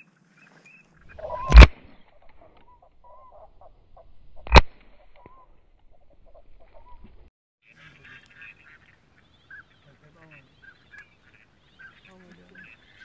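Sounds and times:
shotgun shots: 1.1s - 1.9s
faint waterfowl calls: 2.1s - 13.0s.

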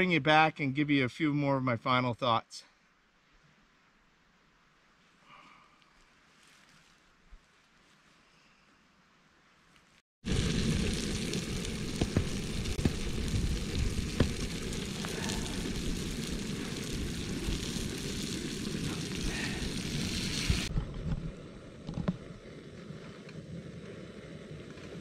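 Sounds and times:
fish sizzling with pops: 10.2s - 20.7s.

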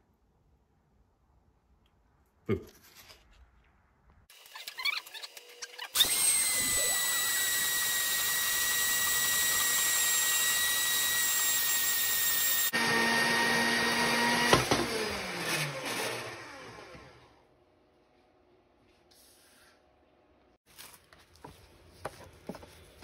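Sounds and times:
motor winding down: 4.4s - 17.4s
band saw cutting metal tube: 5.3s - 17.3s.

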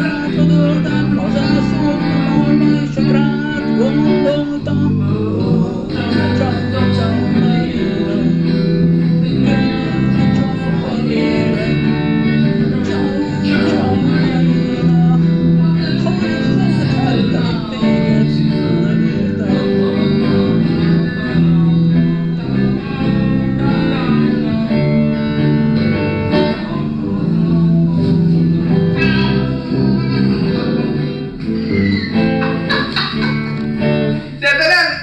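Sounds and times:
electric bass walking line: 0.0s - 34.3s
electric guitar playing: 0.0s - 34.5s.

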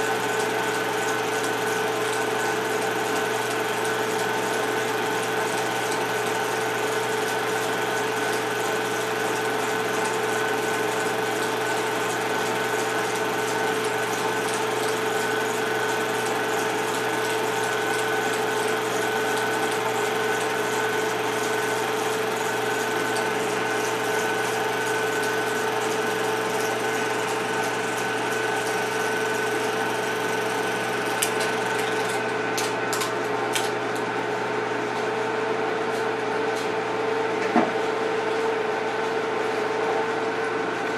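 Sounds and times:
film projector motor whirring: 0.0s - 34.6s
projector clicks: 31.1s - 33.8s.

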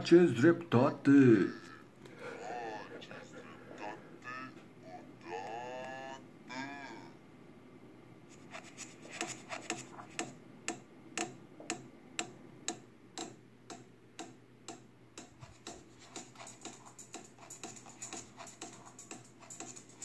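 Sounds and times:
clock-like clicks: 10.2s - 19.8s
electronic music through speakers: 15.4s - 20.0s.

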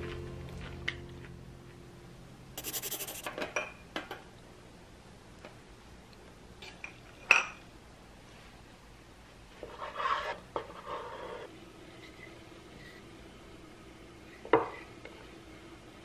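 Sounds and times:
ceramic dishes clinking: 6.8s - 7.6s.

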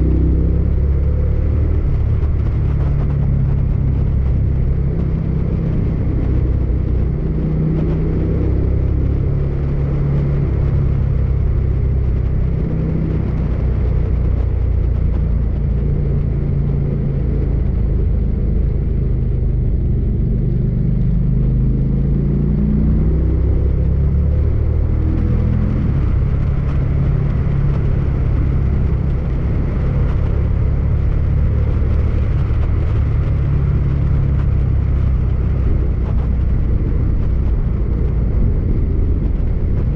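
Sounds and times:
motorcycle engine running: 0.0s - 39.9s
wind and road noise: 0.0s - 39.9s.

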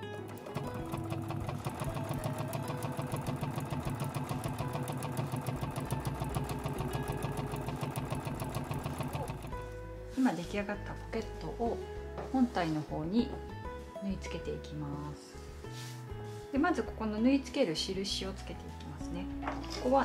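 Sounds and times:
sewing machine stitching: 0.0s - 9.7s.

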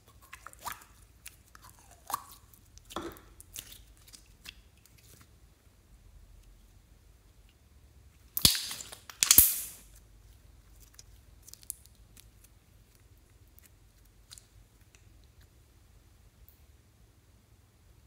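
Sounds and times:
slime crackling: 0.1s - 5.3s
sticky slime pops: 8.4s - 9.8s.

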